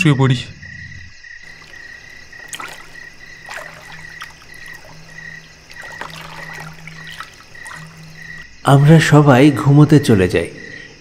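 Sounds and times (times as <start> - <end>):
crickets chirping: 0.0 - 11.0
frogs croaking: 0.0 - 11.0
water trickling: 1.4 - 8.5.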